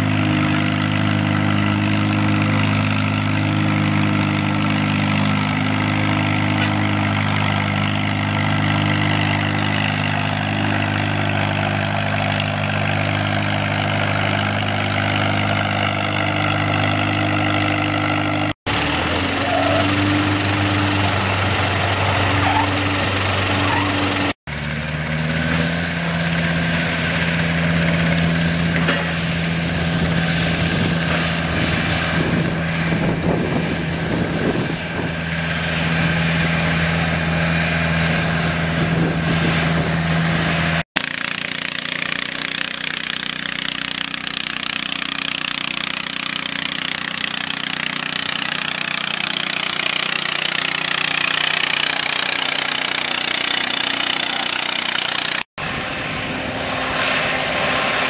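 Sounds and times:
tractor engine under load: 0:00.0 - 0:58.0.

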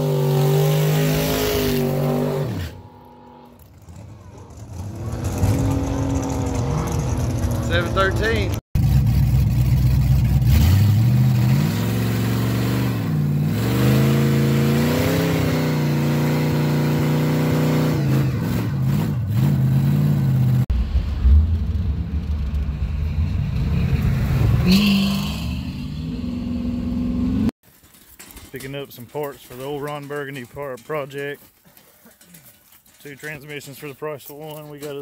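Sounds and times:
truck engine revving hard: 0:00.0 - 0:20.7
engine and road noise: 0:00.0 - 0:35.0.

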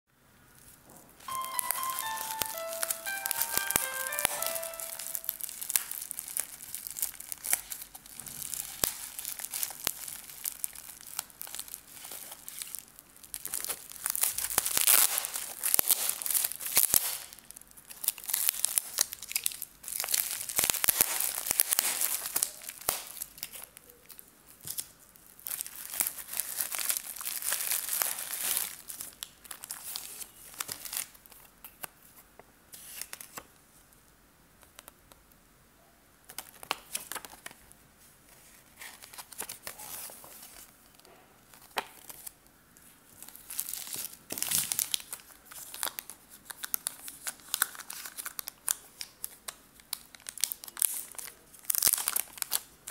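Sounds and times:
plastic bags crinkling: 0:01.3 - 0:31.5, 0:43.2 - 0:52.9.

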